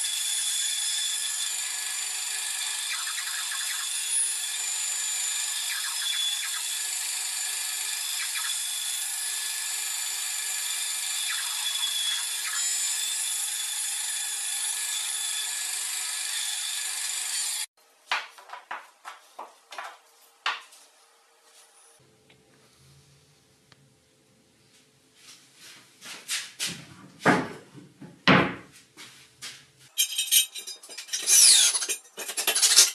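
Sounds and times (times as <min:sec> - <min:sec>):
band saw cutting wood: 0:00.0 - 0:17.7, 0:30.0 - 0:32.9.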